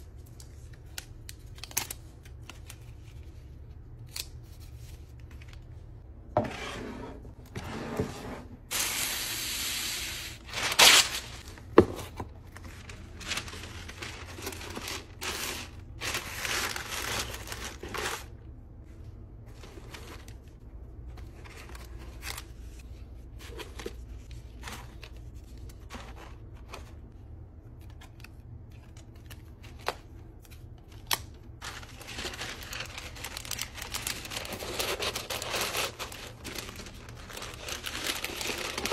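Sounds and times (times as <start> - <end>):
tissue paper crinkling: 10.2 - 11.7, 12.3 - 18.4, 31.6 - 38.9
packing materials rustling: 10.2 - 18.4, 28.8 - 38.9.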